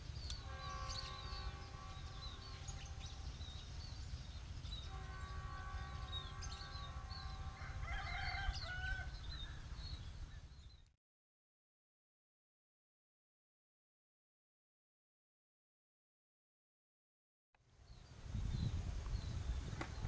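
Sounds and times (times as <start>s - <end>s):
small birds chirping: 0.0s - 10.9s, 17.8s - 20.0s
distant locomotive horn: 0.1s - 9.3s
rooster crowing: 7.5s - 9.3s.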